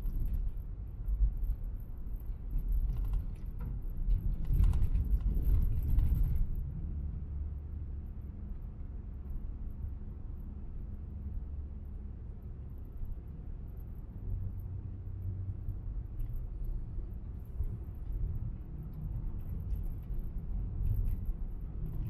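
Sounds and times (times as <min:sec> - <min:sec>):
car tyres and engine rumble: 0:00.0 - 0:22.0
light clicking and rattling: 0:02.2 - 0:06.6, 0:16.1 - 0:22.0.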